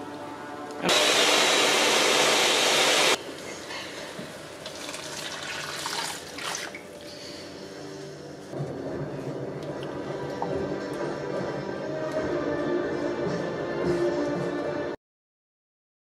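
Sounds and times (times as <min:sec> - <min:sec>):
blender motor running: 0:00.8 - 0:03.2
puree pouring into pan: 0:04.6 - 0:06.8.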